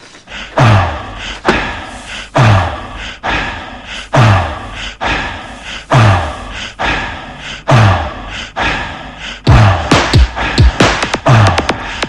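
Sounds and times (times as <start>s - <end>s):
drum machine kick drum: 9.5s - 12.0s
snare-like hit: 9.9s - 11.2s.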